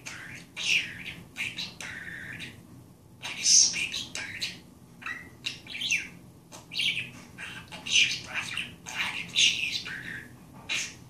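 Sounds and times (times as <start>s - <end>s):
budgerigar chattering: 3.2s - 11.0s.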